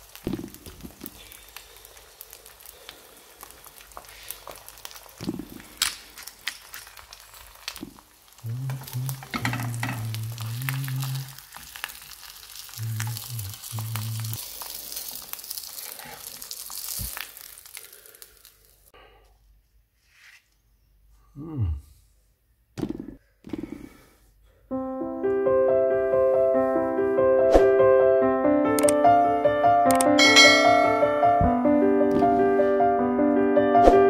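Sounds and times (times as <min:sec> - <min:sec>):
egg sizzling in oil: 0:00.0 - 0:18.9.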